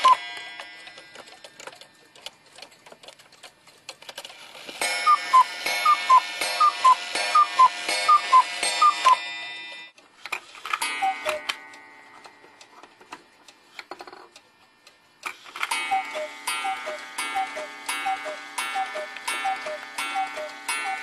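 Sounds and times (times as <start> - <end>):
cuckoo clock strikes: 0.0 - 1.5, 4.7 - 10.0, 10.7 - 12.9, 15.6 - 21.0
clock ticks and clicks: 0.0 - 9.2, 9.9 - 21.0
two-note cuckoo call: 5.1 - 9.2, 10.8 - 11.6, 15.7 - 21.0.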